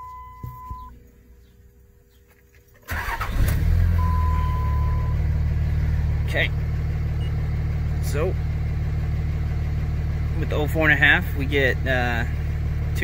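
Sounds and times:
electronic beep: 0:00.0 - 0:00.9, 0:04.0 - 0:05.2
diesel engine starting and idling: 0:02.7 - 0:13.0.

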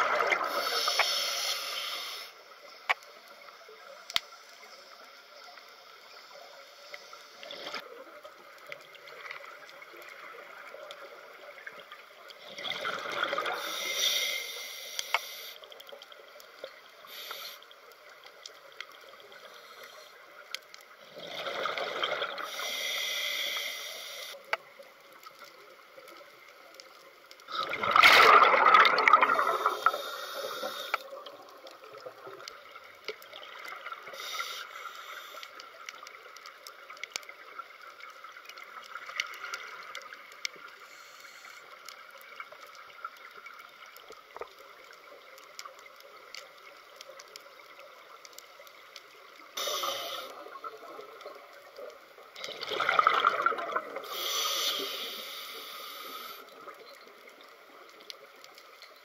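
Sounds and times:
regulator bubbles gurgling: 0:00.0 - 0:00.8, 0:21.1 - 0:22.6, 0:27.5 - 0:30.1, 0:49.5 - 0:54.2
faint underwater hiss: 0:00.0 - 0:59.0
small ticks: 0:00.6 - 0:12.4, 0:13.3 - 0:27.5, 0:29.8 - 0:52.6, 0:54.0 - 0:59.0.

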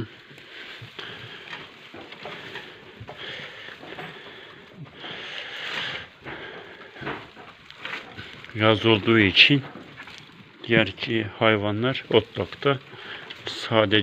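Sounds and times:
hay rustling and crackling: 0:00.0 - 0:14.0.

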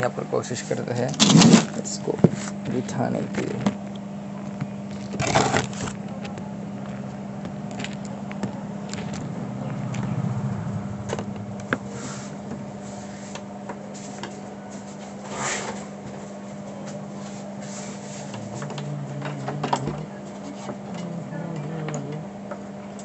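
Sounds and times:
television electrical hum: 0:00.0 - 0:23.0
brief rushing noise: 0:09.2 - 0:13.3.

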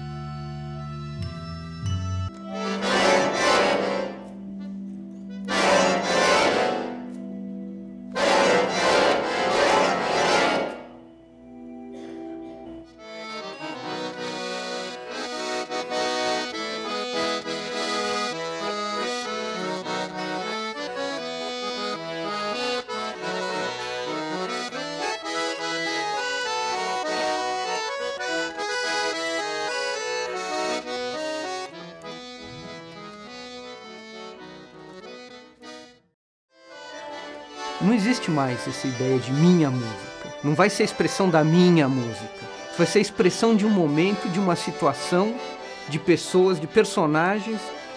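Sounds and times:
piano accordion playing: 0:00.0 - 0:47.9.

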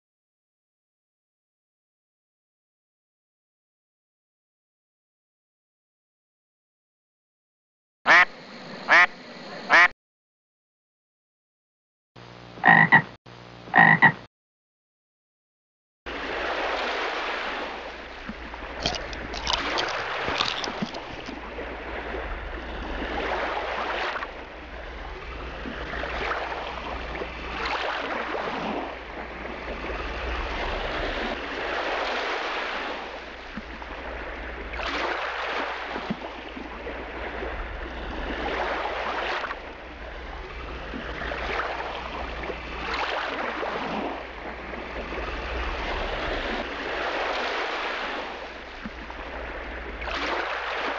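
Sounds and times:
waves lapping on sandy shore: 0:16.1 - 0:50.9.

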